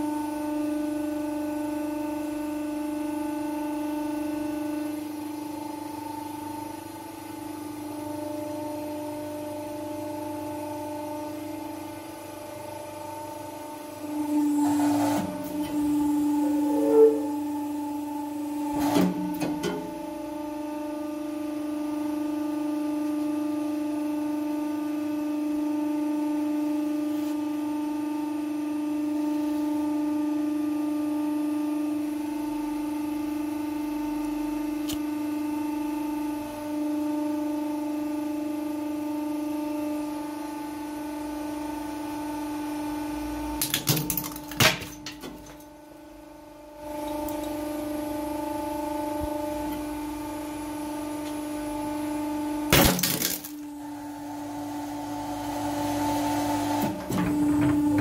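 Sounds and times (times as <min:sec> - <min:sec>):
hydraulic pump motor humming: 0:05.4 - 0:20.8, 0:45.1 - 0:52.7, 0:53.6 - 0:58.0
sharp cracks and knocks: 0:52.7 - 0:53.6.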